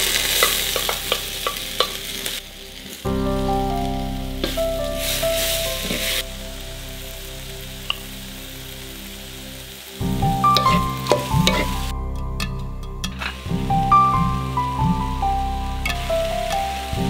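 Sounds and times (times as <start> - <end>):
vegetables sizzling in hot oil: 0.0 - 11.9, 15.4 - 17.0.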